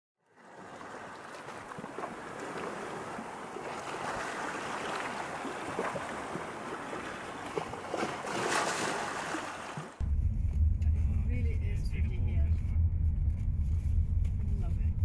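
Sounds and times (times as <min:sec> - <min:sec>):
sea water lapping against rock: 0:00.3 - 0:10.0.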